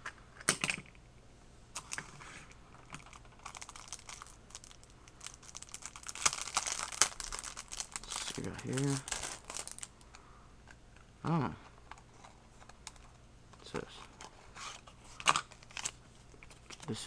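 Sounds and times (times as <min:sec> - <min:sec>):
plastic packaging crinkling: 0:01.8 - 0:02.2, 0:02.8 - 0:10.2, 0:13.8 - 0:17.0.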